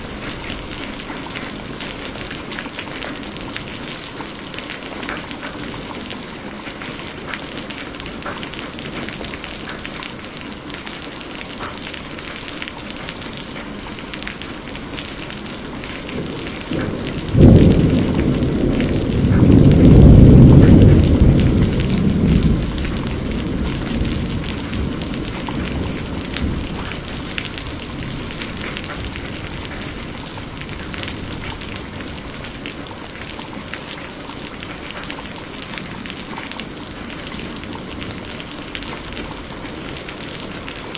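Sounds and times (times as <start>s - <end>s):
steady rain: 0.0s - 40.9s
thunder rumbling: 15.0s - 40.9s.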